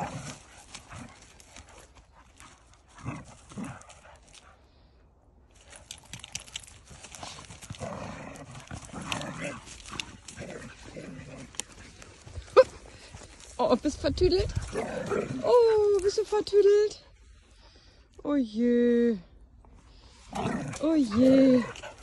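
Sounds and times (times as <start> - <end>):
dogs growling: 0.0 - 4.5, 6.2 - 13.4, 14.4 - 16.0, 19.9 - 22.0
scuffling on leaves and grass: 0.0 - 4.6, 5.5 - 17.6.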